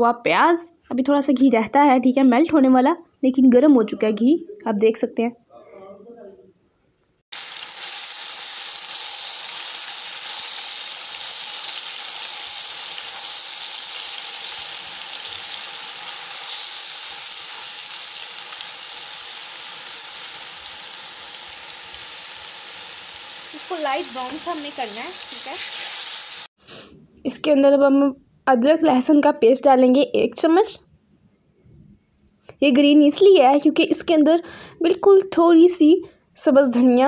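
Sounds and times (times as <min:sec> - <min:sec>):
onions sizzling in fat: 0:07.3 - 0:26.5.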